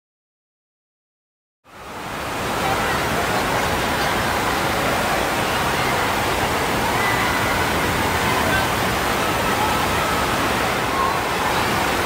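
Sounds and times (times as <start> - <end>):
rushing water: 1.7 - 12.0.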